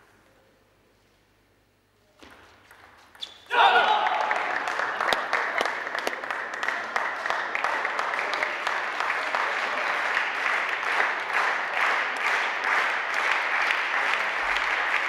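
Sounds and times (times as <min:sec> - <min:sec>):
audience applauding: 0:03.6 - 0:15.0.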